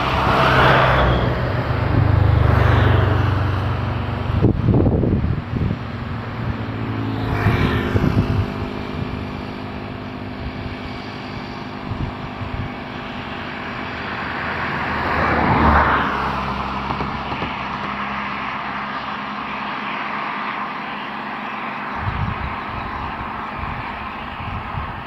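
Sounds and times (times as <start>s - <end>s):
passing traffic: 0.0s - 25.0s
vehicle engine running: 0.0s - 25.0s.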